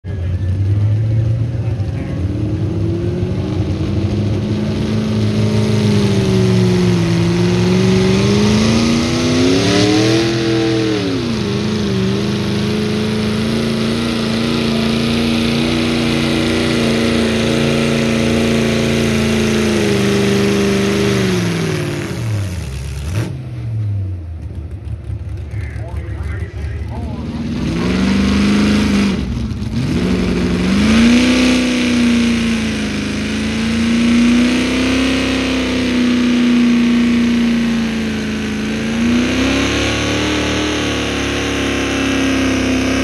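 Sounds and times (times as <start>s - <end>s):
tractor engine under load: 24.2s - 43.0s.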